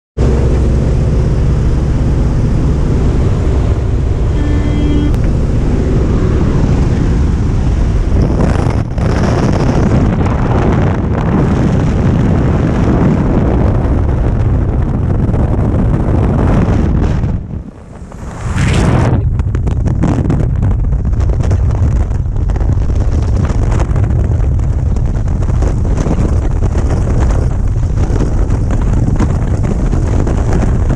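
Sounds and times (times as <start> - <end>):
plane engine and propeller droning: 0.2 - 11.5
wind rushing through open door: 0.2 - 30.9
short tone: 1.2 - 8.3.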